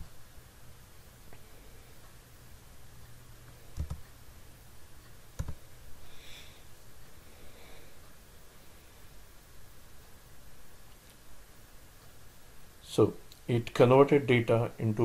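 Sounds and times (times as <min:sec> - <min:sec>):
faint low hum: 0:00.0 - 0:15.0
computer mouse clicks: 0:03.5 - 0:04.1, 0:05.4 - 0:05.6.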